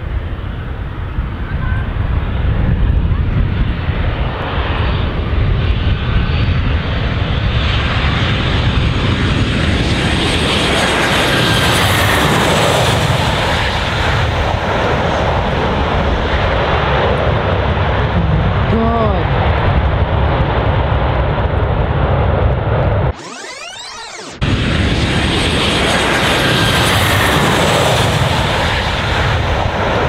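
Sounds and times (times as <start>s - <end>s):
jet engines with fan whine: 0.0s - 30.0s
heavy low rumble: 15.6s - 23.2s.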